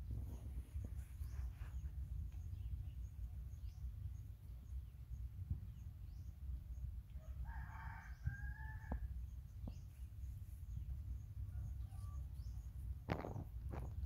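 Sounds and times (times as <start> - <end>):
rooster crowing: 7.2 - 9.1.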